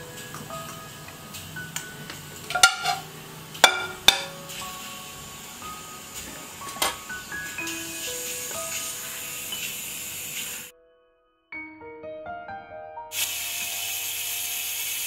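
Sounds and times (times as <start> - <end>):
light background music: 0.0 - 11.0
ceramic bowl knocking on plate: 2.5 - 3.0, 3.6 - 4.3.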